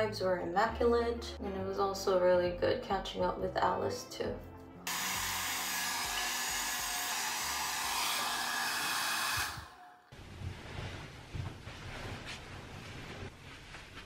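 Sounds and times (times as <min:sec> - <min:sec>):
hair dryer blowing: 0:04.9 - 0:10.0
pillows rustling: 0:10.1 - 0:14.0
soft low thumps of pillows: 0:10.2 - 0:14.0.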